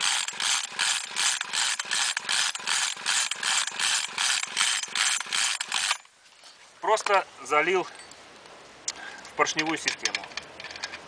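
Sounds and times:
chainsaw recoil starter whirring: 0:00.0 - 0:06.1.

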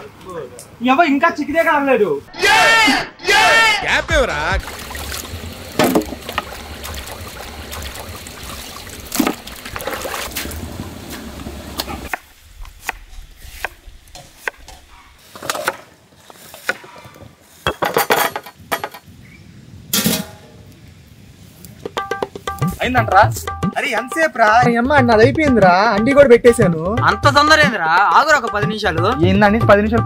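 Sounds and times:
hands sloshing water in a steel bowl: 0:04.6 - 0:10.6.

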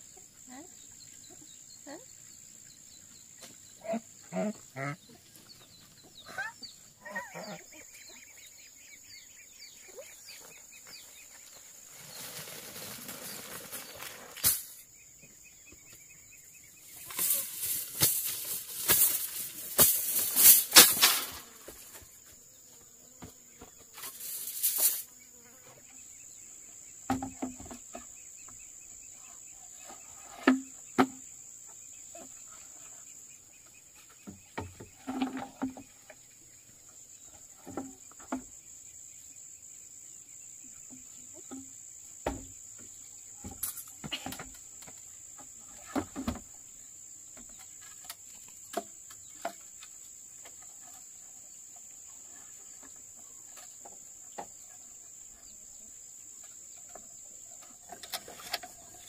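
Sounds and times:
knocks and clatters of work: 0:27.0 - 0:28.6, 0:41.5 - 0:46.5.

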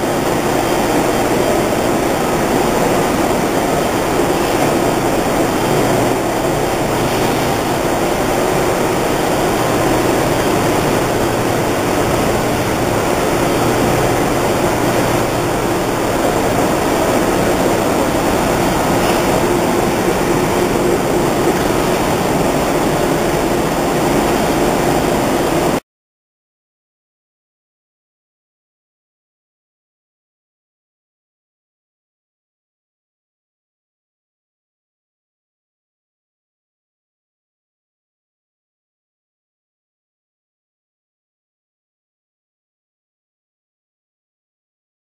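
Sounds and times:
printing press running: 0:00.0 - 0:25.8.

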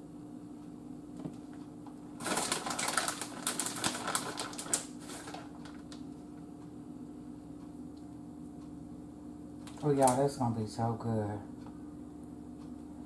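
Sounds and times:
plastic bag crinkling: 0:02.2 - 0:06.0, 0:09.6 - 0:10.2.

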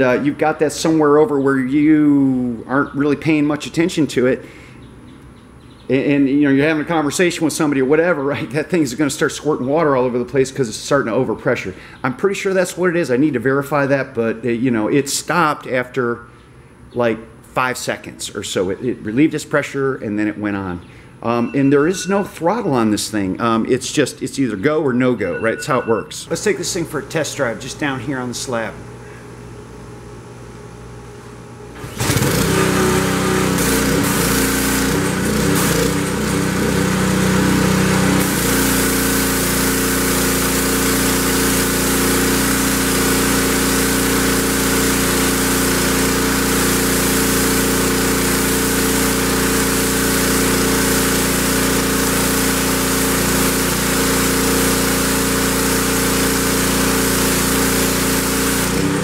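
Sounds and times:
pressure washer engine running: 0:26.3 - 0:28.7, 0:31.8 - 0:59.0
water jet hissing on concrete: 0:32.1 - 0:59.0.

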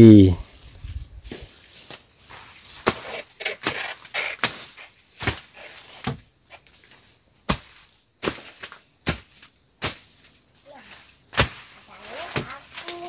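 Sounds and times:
machete slashing through undergrowth: 0:02.6 - 0:06.2, 0:11.3 - 0:13.0.

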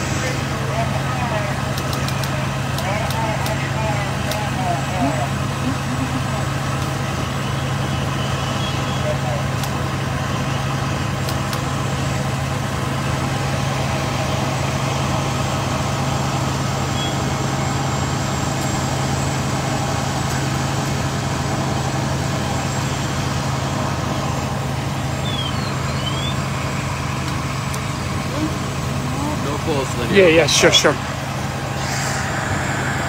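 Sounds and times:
diesel engine droning: 0:00.0 - 0:33.0.

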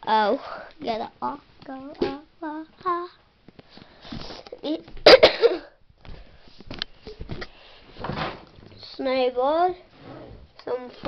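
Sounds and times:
loud cough-like burst: 0:05.0 - 0:05.8.

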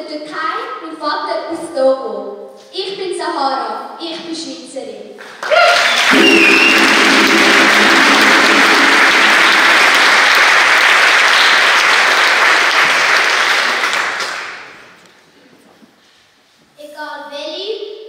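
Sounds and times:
audience applauding: 0:05.3 - 0:15.0
people cheering: 0:05.4 - 0:14.6.

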